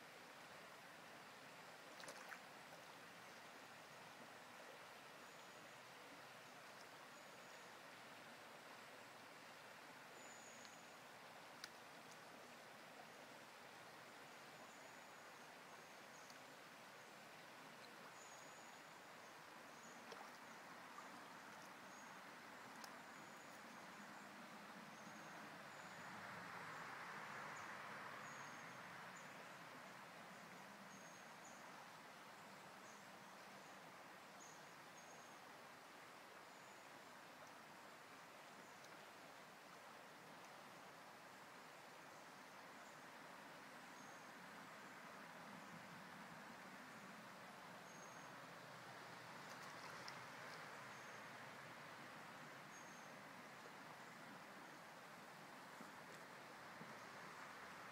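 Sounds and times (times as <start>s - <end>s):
shallow river water rushing: 0.0s - 57.9s
faint click: 2.0s - 2.4s, 10.6s - 10.8s, 11.5s - 12.3s, 16.2s - 16.5s, 20.0s - 20.4s, 22.7s - 23.6s, 38.8s - 39.0s, 49.4s - 50.7s.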